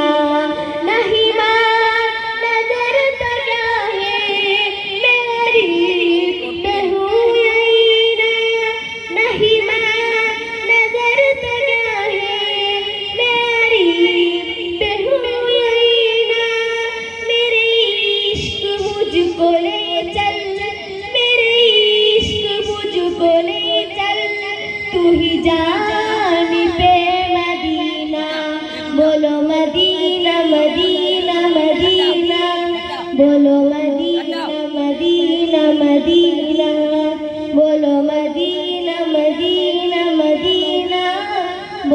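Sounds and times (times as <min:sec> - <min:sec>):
boy singing into a microphone: 0:00.0 - 0:41.9.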